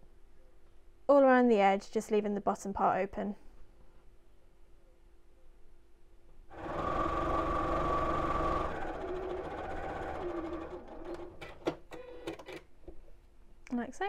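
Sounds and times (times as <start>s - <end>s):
sewing machine stitching: 6.5s - 12.6s.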